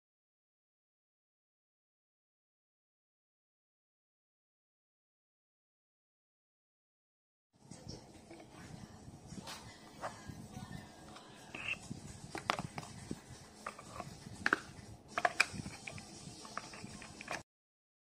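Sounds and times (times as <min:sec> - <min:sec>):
plastic clicks and knocks: 0:12.3 - 0:12.8, 0:13.6 - 0:17.4.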